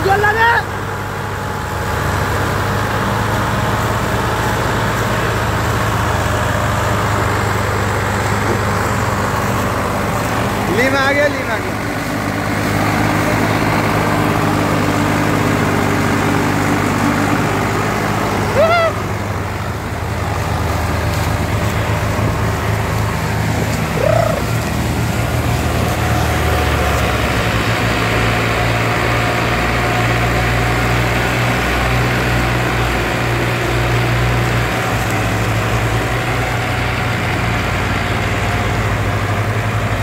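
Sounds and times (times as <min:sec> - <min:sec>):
tractor engines under heavy load: 0:00.0 - 0:40.0
high rising and falling call: 0:13.1 - 0:19.2, 0:23.8 - 0:25.3.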